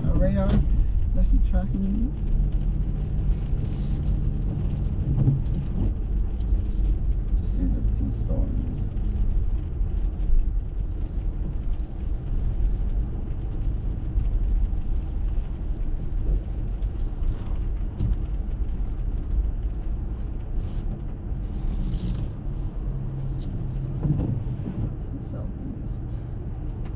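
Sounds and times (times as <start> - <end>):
engine and tyre rumble: 0.0 - 26.9.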